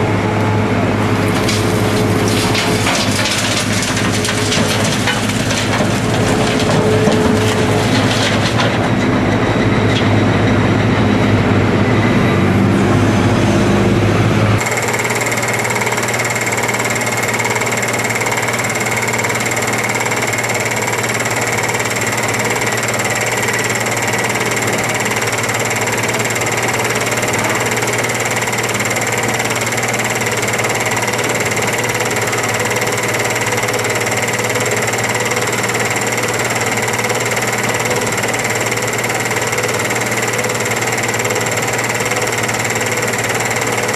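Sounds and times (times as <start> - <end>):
diesel engine running steadily: 0.0 - 43.9
heavy engine rumble: 0.0 - 43.9
rubble tumbling into truck body: 1.3 - 9.1.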